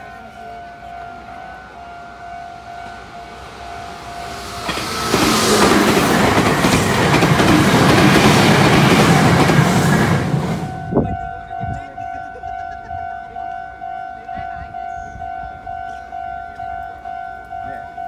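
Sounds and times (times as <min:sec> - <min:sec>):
level crossing alarm ringing: 0:00.0 - 0:05.6
train wheels rumbling over rails: 0:02.4 - 0:11.0.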